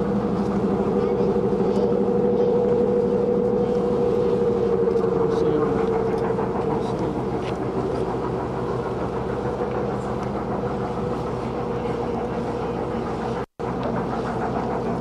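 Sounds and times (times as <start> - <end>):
faint held tone: 0.0 - 9.1
distant steam locomotive rumble: 0.0 - 15.0.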